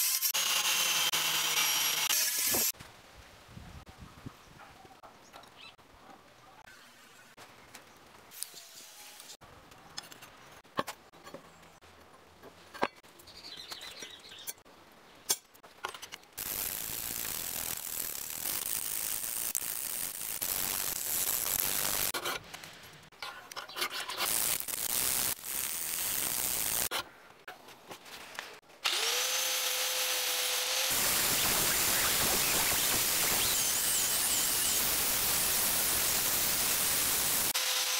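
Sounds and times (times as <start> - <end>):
angle grinder whining and grinding: 0.0 - 2.7, 28.8 - 37.9
power tool grinding steel: 0.0 - 2.8, 28.8 - 37.9.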